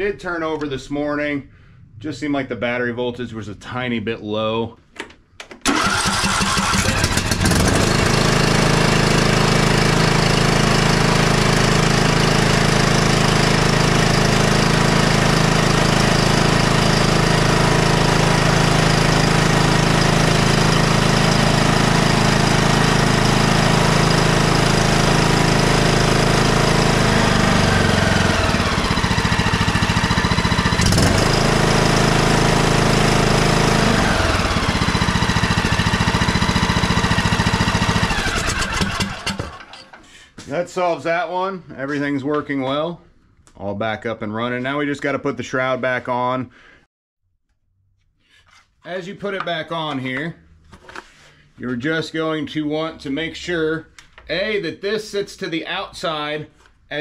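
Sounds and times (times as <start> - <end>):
mower engine running: 5.7 - 40.0.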